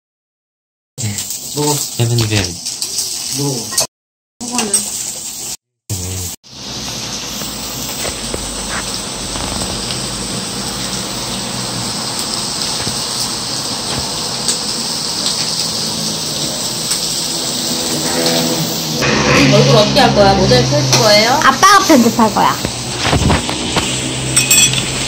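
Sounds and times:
meat sizzling on grill pan: 0:01.0 - 0:19.1.

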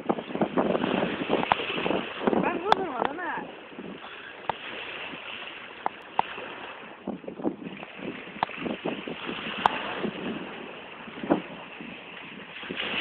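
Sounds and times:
wind buffeting microphone: 0:00.0 - 0:13.0.

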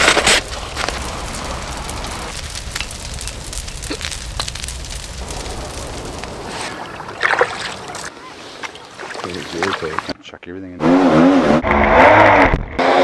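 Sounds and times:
campfire crackling: 0:00.0 - 0:10.2.

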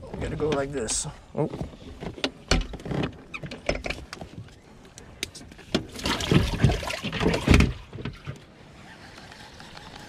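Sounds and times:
fish splashing in water: 0:05.9 - 0:07.8.

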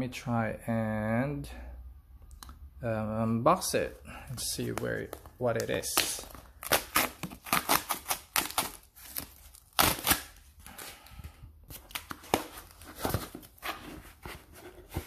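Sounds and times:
cardboard box being torn open: 0:06.0 - 0:10.3.

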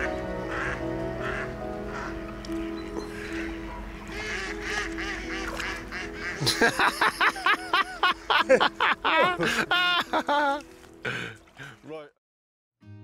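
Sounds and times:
man laughing hard: 0:06.4 - 0:11.2.

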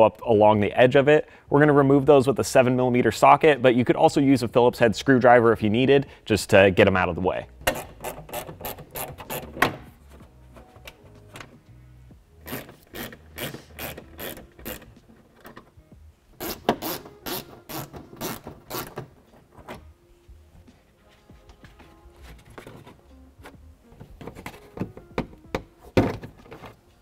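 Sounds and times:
ratchet wrench clicking: 0:12.4 - 0:14.9.

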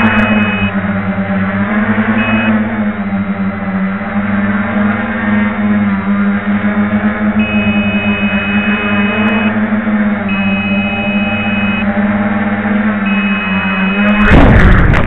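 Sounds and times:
high two-tone alarm beeps: 0:00.0 - 0:00.7, 0:02.2 - 0:02.6, 0:07.4 - 0:09.6, 0:10.3 - 0:11.9, 0:13.1 - 0:14.3
drone motors buzzing: 0:00.0 - 0:15.0
drone crashing onto pavement: 0:14.2 - 0:15.0.

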